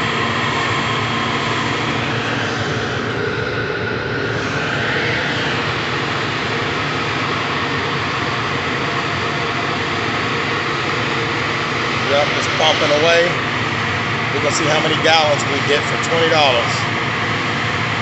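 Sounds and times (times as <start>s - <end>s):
car wash running: 5.1s - 18.0s.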